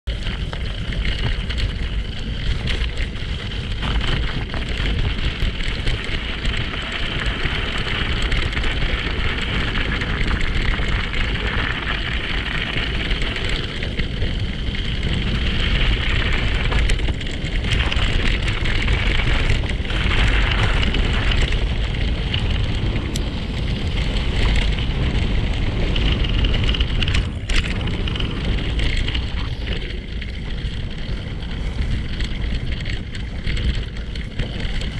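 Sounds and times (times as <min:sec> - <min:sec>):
wind buffeting microphone: 0:00.0 - 0:34.9.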